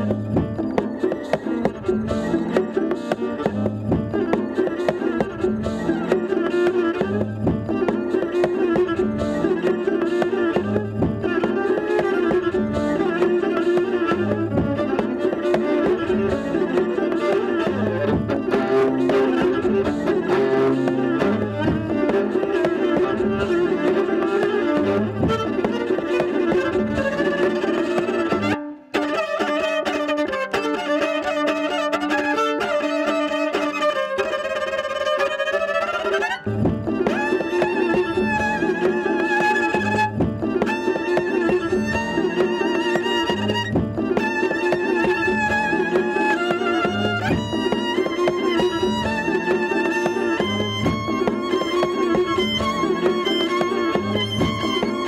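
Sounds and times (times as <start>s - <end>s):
bowed viola lines: 0.0s - 55.0s
percussive strokes on strings: 0.0s - 55.0s.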